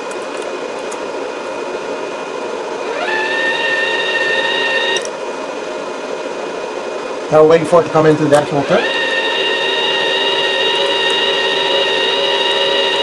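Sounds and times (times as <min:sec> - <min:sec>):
welder cooling fan running: 0:00.0 - 0:13.0
wire-feed motor whining: 0:02.8 - 0:05.1, 0:08.3 - 0:13.0.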